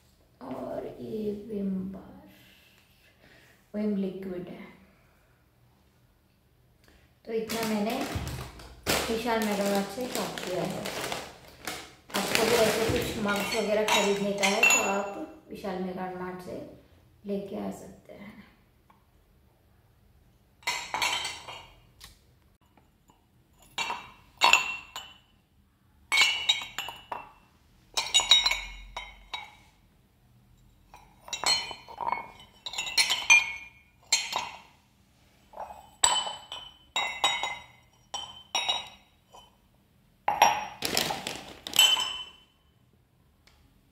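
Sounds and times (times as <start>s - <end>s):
ceramic mugs clinking: 12.2s - 15.3s, 20.6s - 21.9s, 22.7s - 25.4s, 26.1s - 29.8s, 30.6s - 34.8s, 35.5s - 39.6s, 40.3s - 40.8s, 41.6s - 42.6s.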